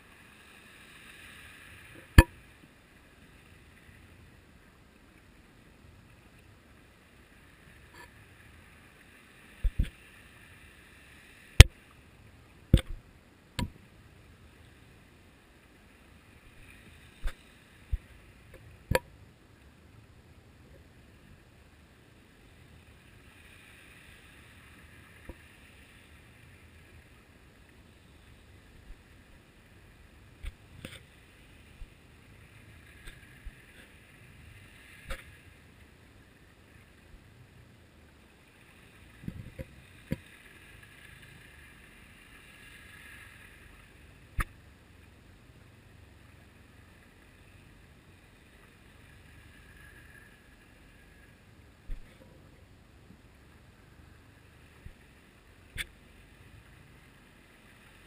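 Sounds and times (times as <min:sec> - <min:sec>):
sharp clicks and knocks: 0:12.7 - 0:13.0.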